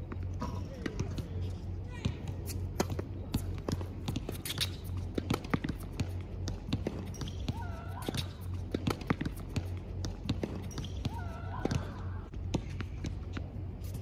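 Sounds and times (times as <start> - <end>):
ball bouncing: 2.0 - 13.5
shoe squeaks: 4.1 - 9.5, 10.3 - 12.0.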